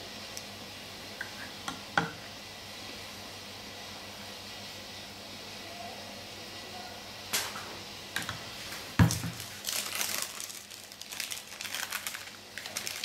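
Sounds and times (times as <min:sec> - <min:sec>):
plastic wrapping crinkling: 0:09.0 - 0:13.0.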